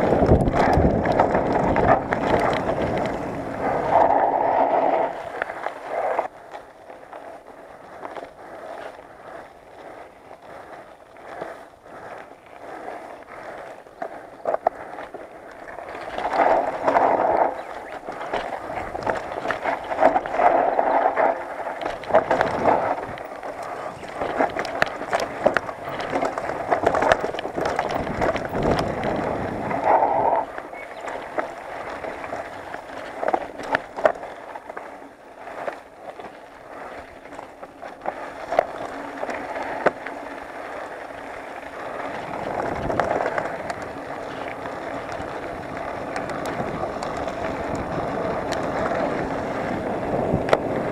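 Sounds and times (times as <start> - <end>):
bike knocks and rattles: 0.0 - 4.0, 15.8 - 29.9
bike tyres crunching on dirt: 0.0 - 50.9.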